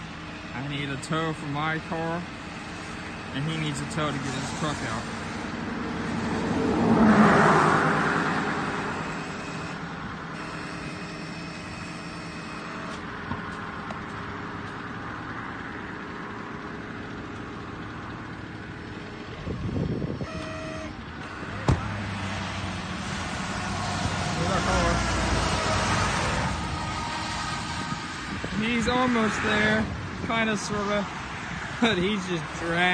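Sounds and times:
truck engines running: 0.0s - 32.9s
brief tone: 10.4s - 12.9s.

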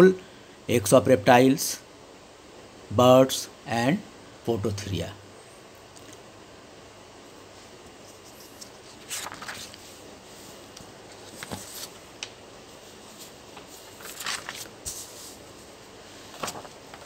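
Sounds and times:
paper pages rustling: 8.0s - 17.0s.

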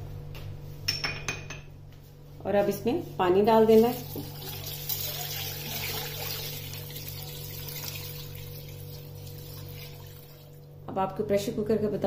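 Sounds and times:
water pouring into a pot: 3.7s - 10.7s
water splashing onto food: 3.9s - 10.7s.

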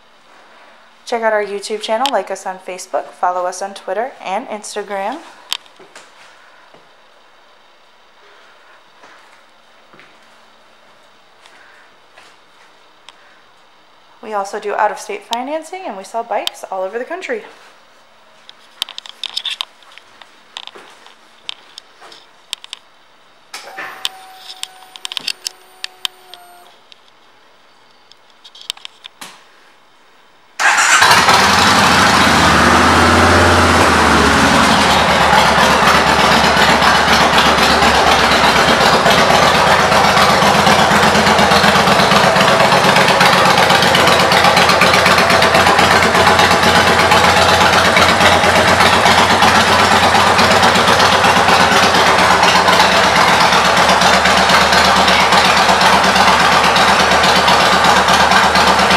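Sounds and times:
motorcycle engine starting and revving: 23.6s - 26.7s, 30.6s - 58.9s
motorcycle idling loudly: 30.7s - 58.9s.

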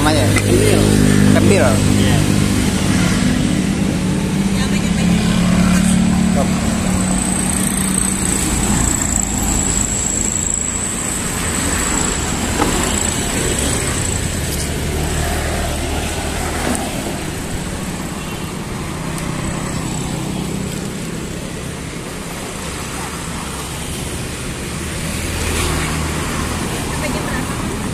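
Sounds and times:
vehicle engines passing: 0.0s - 27.9s
thin high whine: 6.9s - 14.3s.

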